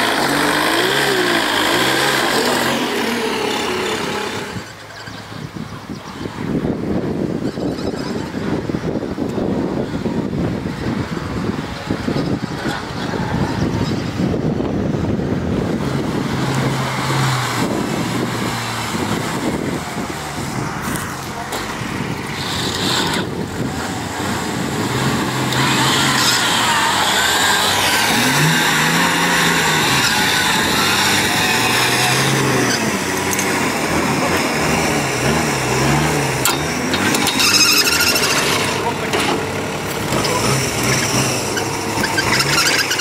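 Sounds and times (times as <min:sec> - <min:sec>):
electric winch whining: 0:00.0 - 0:04.8, 0:25.4 - 0:34.4, 0:36.4 - 0:43.0
truck engine revving: 0:00.0 - 0:43.0.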